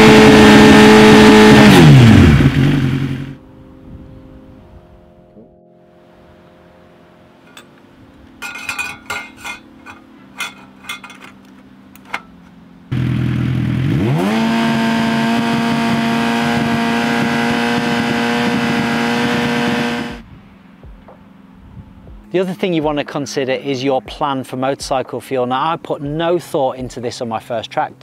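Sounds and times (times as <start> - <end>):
motorcycle engine revving: 0.0 - 3.4, 12.9 - 20.2
light metal clinks: 7.5 - 7.8, 8.4 - 12.4.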